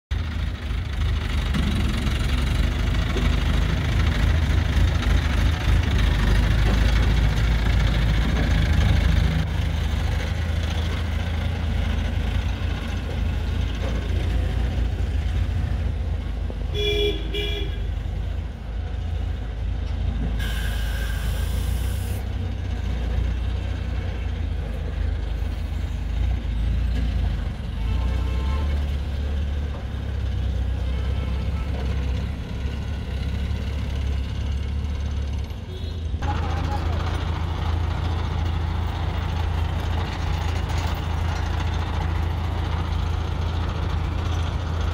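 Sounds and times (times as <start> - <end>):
diesel engines rumbling: 0.1 - 44.9
double horn toot: 16.8 - 17.9
hiss: 20.4 - 22.2.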